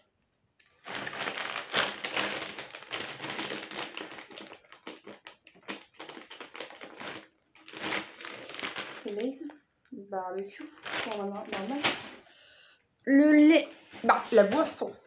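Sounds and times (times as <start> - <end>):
crisp packet crinkling: 0.6 - 9.6, 10.5 - 12.2.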